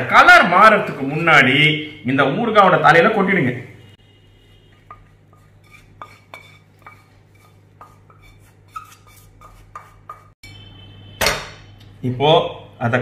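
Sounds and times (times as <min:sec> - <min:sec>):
wooden spatula scraping a pan: 0:04.6 - 0:10.4.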